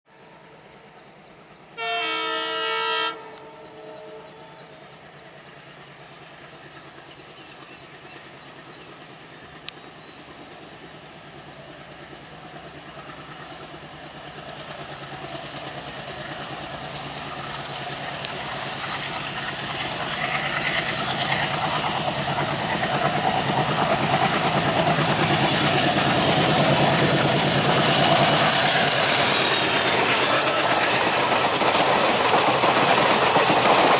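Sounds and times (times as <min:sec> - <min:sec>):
train wheels: 0:00.2 - 0:33.9
locomotive horn blast: 0:01.8 - 0:04.6
locomotive engine: 0:02.0 - 0:33.9.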